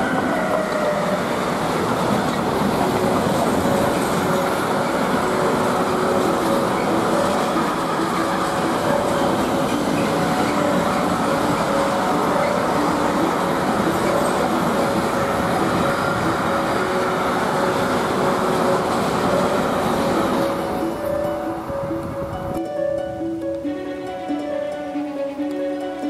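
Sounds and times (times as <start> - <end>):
freight train rumbling on rails: 0.0 - 26.0
thin whining tones: 0.0 - 26.0.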